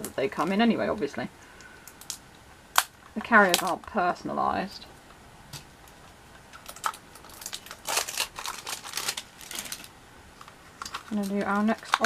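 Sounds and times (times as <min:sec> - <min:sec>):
plastic clicks and rustling: 0:06.5 - 0:12.0.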